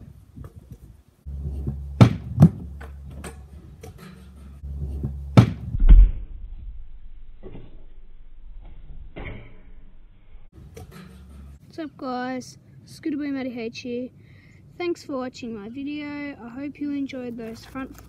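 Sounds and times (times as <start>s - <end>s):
scooter knocking and thudding: 1.6s - 4.0s, 4.9s - 6.2s.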